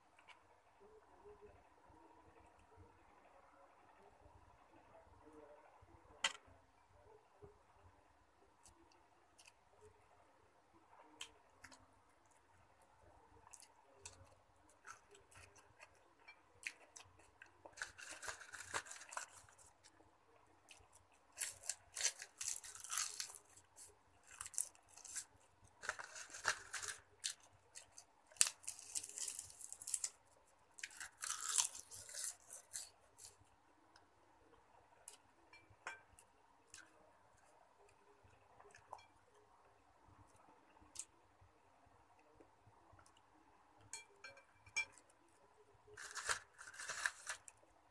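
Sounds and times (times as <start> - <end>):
crunchy chewing: 13.4 - 20.0, 20.6 - 33.5, 46.0 - 47.6.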